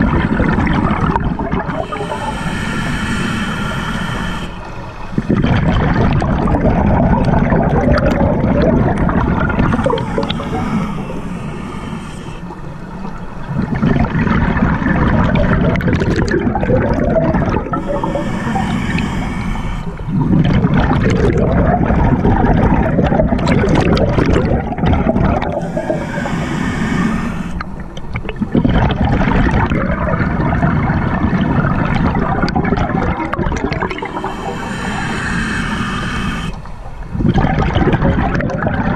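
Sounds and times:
bubbling exhalations underwater: 0.0s - 2.7s, 5.2s - 12.4s, 13.5s - 19.2s, 20.0s - 27.0s, 27.8s - 38.9s
regulator inhalation hiss: 1.6s - 5.4s, 9.4s - 12.7s, 17.6s - 20.2s, 25.4s - 27.8s, 33.9s - 36.8s.

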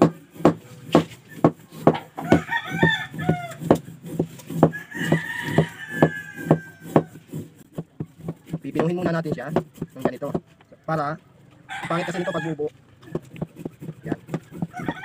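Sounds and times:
rooster crowing: 2.2s - 3.8s, 4.6s - 7.3s, 11.7s - 12.7s, 14.5s - 15.0s
serrated knife scraping sugar block: 2.9s - 10.4s, 13.0s - 15.0s.

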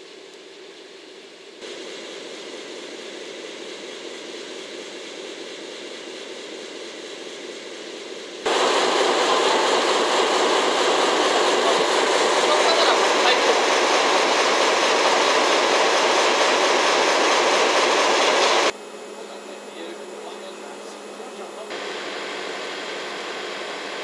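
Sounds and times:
diesel locomotive engine passing: 8.4s - 24.0s.

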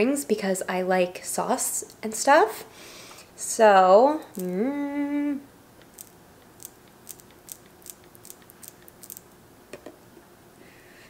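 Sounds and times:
squeeze bottle clicks and spurts: 5.8s - 9.3s.

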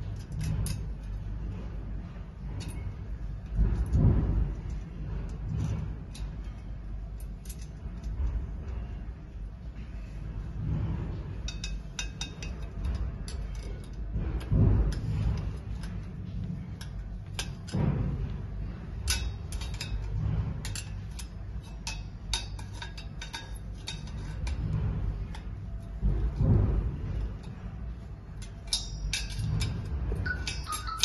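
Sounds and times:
metallic tool clicks: 28.4s - 31.0s.

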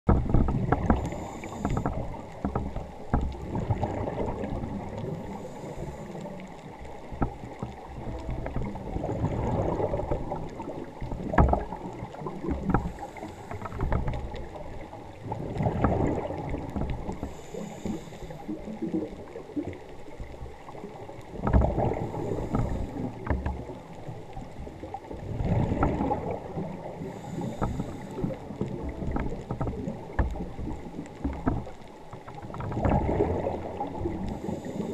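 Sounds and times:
exhaled bubbles rumbling: 0.1s - 34.9s
regulator inhale hiss: 1.0s - 2.1s, 5.2s - 6.5s, 12.8s - 14.0s, 17.1s - 18.7s, 22.0s - 23.2s, 27.0s - 28.4s, 34.2s - 34.9s.

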